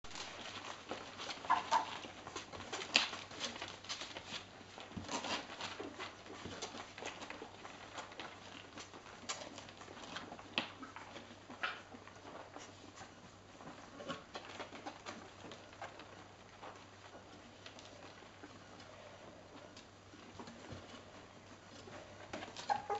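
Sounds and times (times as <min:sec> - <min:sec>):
puppies sucking and smacking: 0:00.1 - 0:22.9
puppy squeaks: 0:22.6 - 0:22.9.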